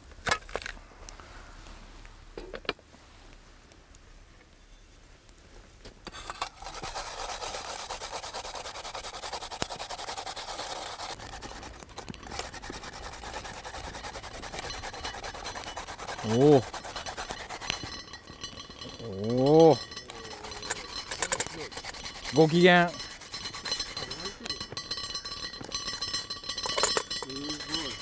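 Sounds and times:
rasping of metal hand grater: 6.3 - 28.0.

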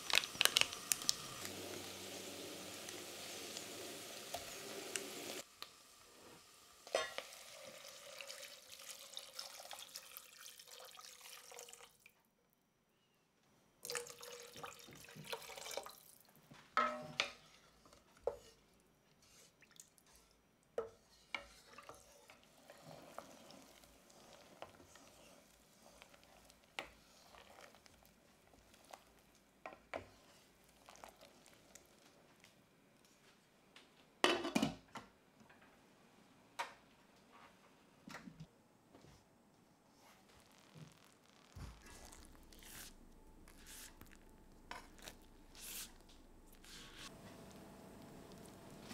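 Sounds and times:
water pouring into a saucepan: 0.0 - 5.4, 7.0 - 12.2, 13.8 - 16.3, 21.7 - 28.1, 30.6 - 32.0, 41.5 - 43.0
wooden spoon stirring: 17.2 - 32.5, 40.0 - 47.5.

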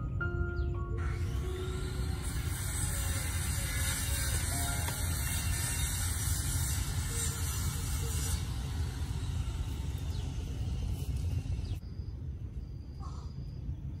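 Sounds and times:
hiss: 1.0 - 11.8.

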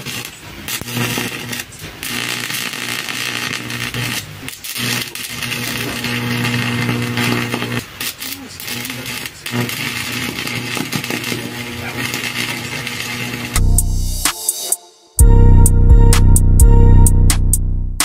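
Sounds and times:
welding arc crackling: 0.0 - 13.9.

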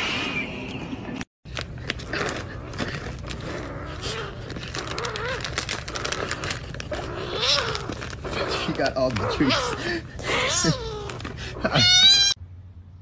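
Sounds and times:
plastic pouch crinkling: 1.5 - 11.8.

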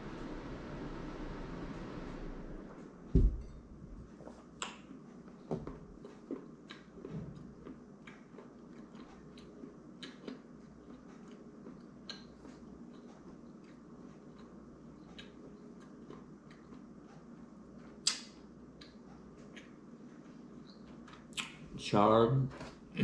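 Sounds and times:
chewing: 6.0 - 18.2.

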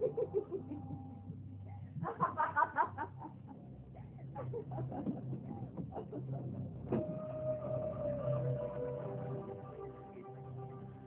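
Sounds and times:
sustained musical tone: 6.9 - 11.0.

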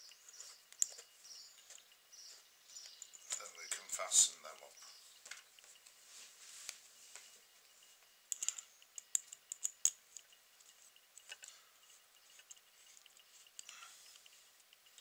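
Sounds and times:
handling ticks: 0.0 - 6.0, 6.6 - 15.0
hex key clicking on screw: 8.3 - 11.5.

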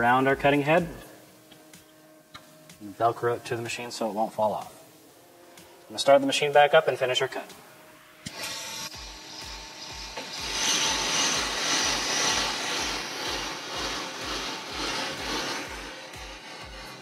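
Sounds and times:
lathe bits scraping brake rotor: 8.3 - 17.0.

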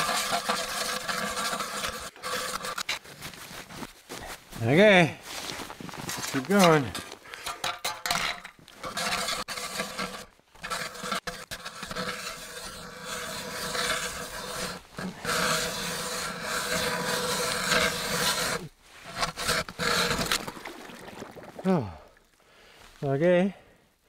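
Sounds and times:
ice auger grinding through ice: 0.0 - 3.4, 6.1 - 7.1, 8.8 - 20.8.

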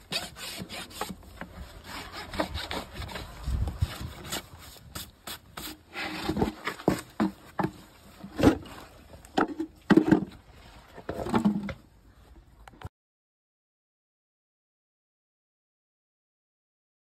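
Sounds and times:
rasping and scraping on hoof: 0.0 - 7.4.

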